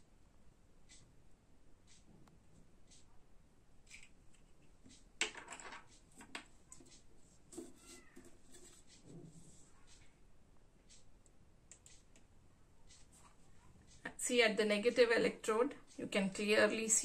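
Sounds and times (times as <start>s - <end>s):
faint short squeaks: 7.7s - 8.3s.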